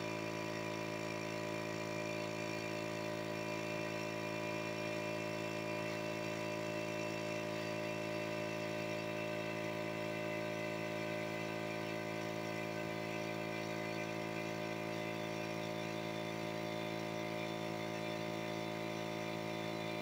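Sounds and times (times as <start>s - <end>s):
small engine running steadily: 0.0s - 20.0s.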